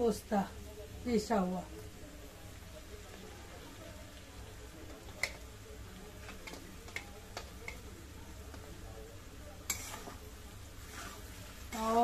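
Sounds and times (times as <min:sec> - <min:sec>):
steel spoon scraping a pan: 0:09.6 - 0:12.0.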